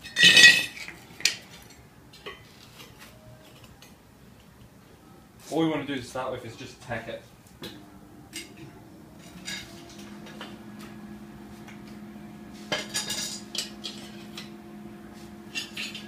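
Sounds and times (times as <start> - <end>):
steady hum: 6.2 - 16.0.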